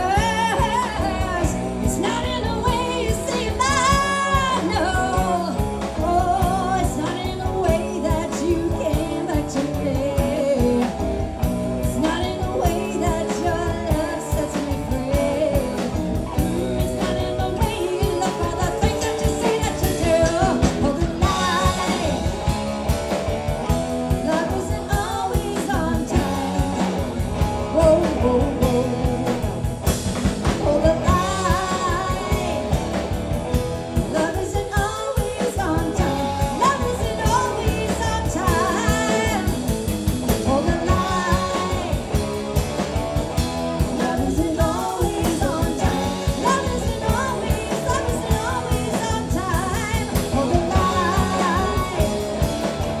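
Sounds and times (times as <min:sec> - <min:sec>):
woman singing: 0:00.0 - 0:29.8, 0:30.4 - 0:33.3, 0:33.9 - 0:42.8, 0:43.8 - 0:53.0
bass guitar: 0:00.0 - 0:53.0
drum kit beat: 0:00.0 - 0:53.0
electric guitar: 0:00.0 - 0:53.0.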